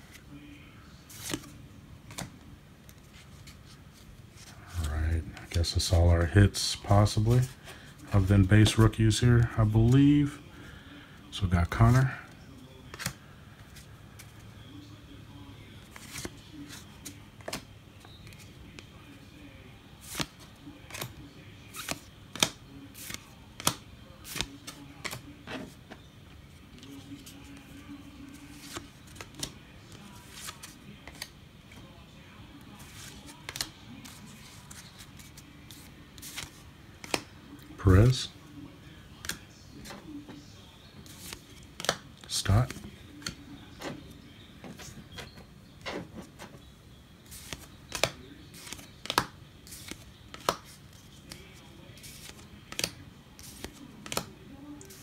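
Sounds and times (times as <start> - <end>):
cards sliding and snapping: 1.1 - 2.3, 20.0 - 25.2, 32.8 - 37.3, 41.0 - 43.4, 47.3 - 51.4, 52.0 - 55.0
cards snapping off a stack: 52.2 - 54.3.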